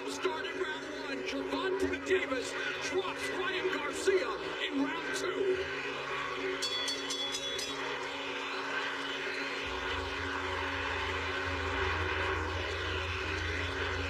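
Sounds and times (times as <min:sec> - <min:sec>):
arena crowd noise: 0:00.0 - 0:14.0
low rumble: 0:09.6 - 0:14.0.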